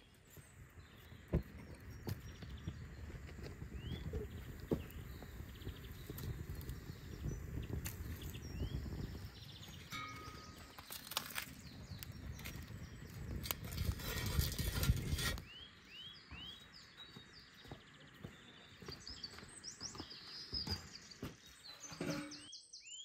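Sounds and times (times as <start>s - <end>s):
small birds chirping: 0.0s - 23.0s
wood fire crackling: 0.3s - 15.4s.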